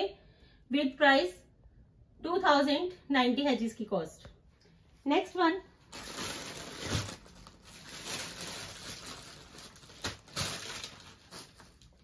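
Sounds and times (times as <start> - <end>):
cloth rustling and crumpling: 5.8 - 12.0.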